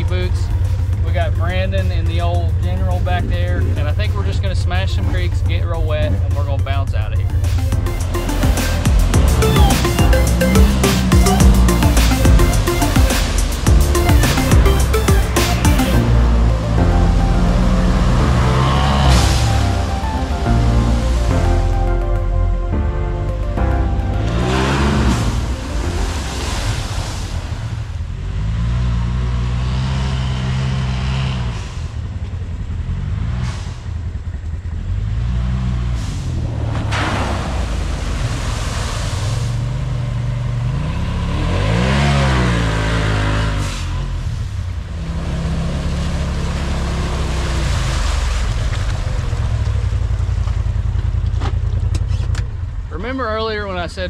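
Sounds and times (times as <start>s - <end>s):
vehicle engine revving: 0.0s - 52.9s
water splashing: 23.4s - 28.7s, 36.1s - 40.8s, 43.8s - 51.7s.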